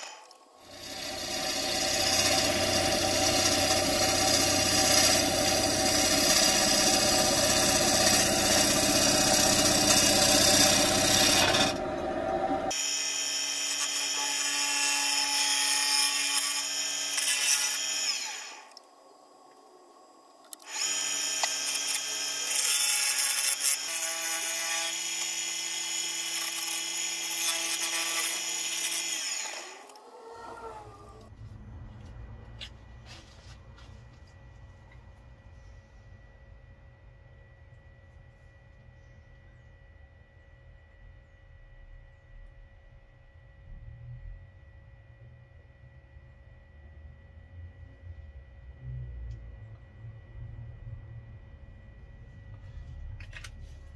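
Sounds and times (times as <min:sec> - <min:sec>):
wood lathe gouge scraping: 0:00.0 - 0:12.7
power tool hum: 0:00.0 - 0:31.4.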